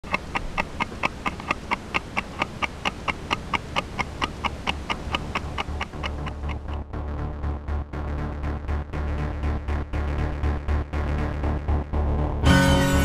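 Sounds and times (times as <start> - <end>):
rapid even ticking: 0.0 - 6.8.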